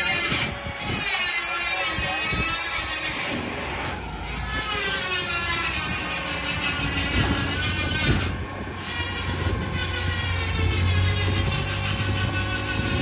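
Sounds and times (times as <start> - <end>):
crane engine running: 0.0 - 13.0
high hydraulic whine: 0.0 - 13.0.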